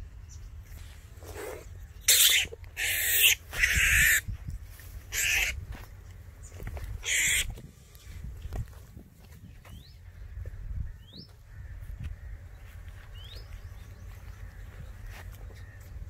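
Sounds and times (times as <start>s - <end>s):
snake hissing in sharp bursts: 1.2s - 4.2s.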